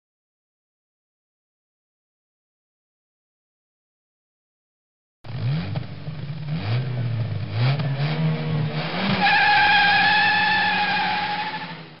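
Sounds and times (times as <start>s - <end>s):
race car engine revving: 5.3s - 12.0s
high-pitched squeal: 9.2s - 12.0s.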